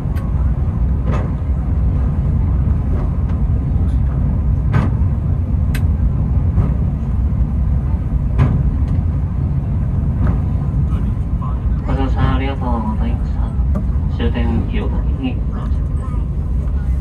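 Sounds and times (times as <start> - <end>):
cable car rumbling: 0.0 - 17.0
track clicks and knocks: 1.0 - 1.5, 2.8 - 7.0, 8.3 - 9.1, 10.1 - 11.0.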